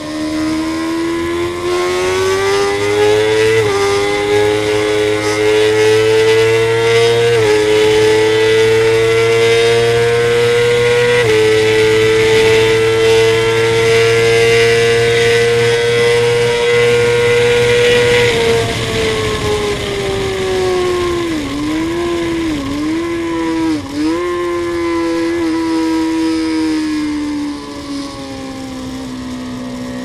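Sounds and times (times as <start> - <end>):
motorcycle engine revving: 0.0 - 30.0
wind rushing: 15.4 - 25.0.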